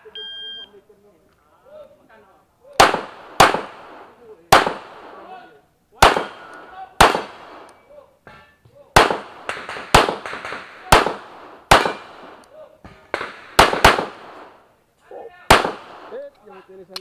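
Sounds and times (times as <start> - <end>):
pistol shots: 2.8 - 5.3, 6.0 - 7.8, 9.0 - 12.4, 13.0 - 14.6, 15.5 - 16.2.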